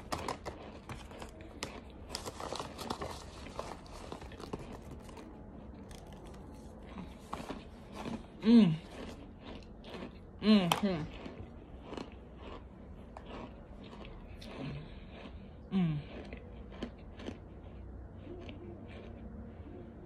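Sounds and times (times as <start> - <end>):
plastic bag crinkling: 0.0 - 8.1
person humming: 8.4 - 8.9.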